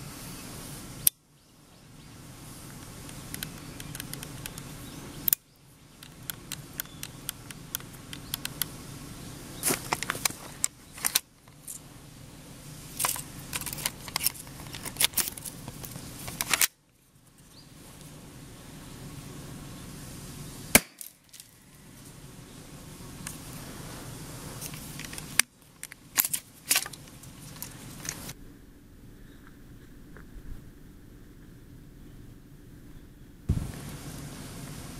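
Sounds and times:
light clicks and ticks: 2.7s - 4.7s, 6.0s - 8.7s.

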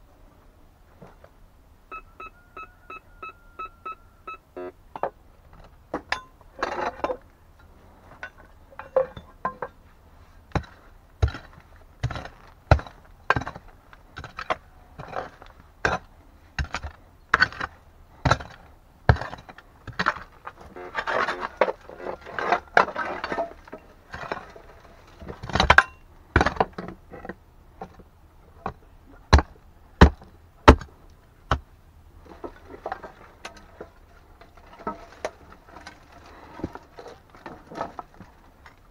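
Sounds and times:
gritty scraping and clinks on stone: 5.0s - 9.9s, 10.5s - 28.0s, 32.2s - 38.9s
digging tool striking stony soil: 10.5s - 28.0s, 28.7s - 30.9s.

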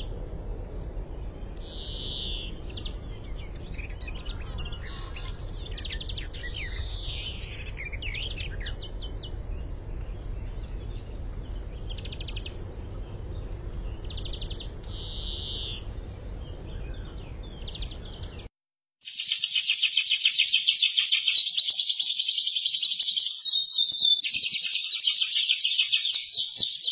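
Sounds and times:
low background rumble: 0.0s - 18.5s
finch singing buzzy trills: 1.4s - 26.9s
loud fast finch trilling: 1.6s - 9.4s, 13.2s - 18.4s, 19.0s - 26.9s.

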